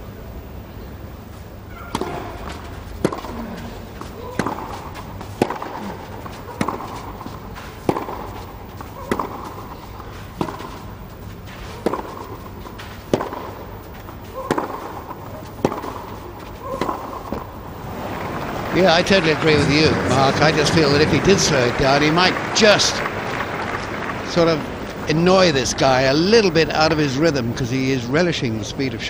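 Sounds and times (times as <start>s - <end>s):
tennis ball struck by rackets: 1.7s - 22.0s.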